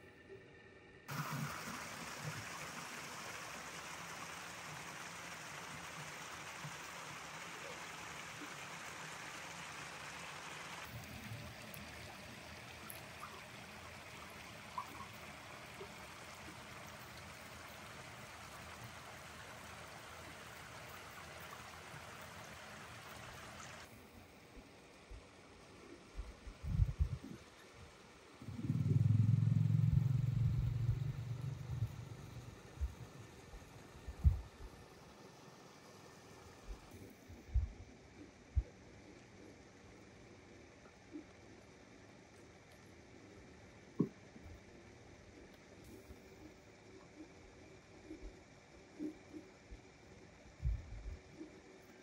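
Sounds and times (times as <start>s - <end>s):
water running steadily: 1.1s - 52.0s.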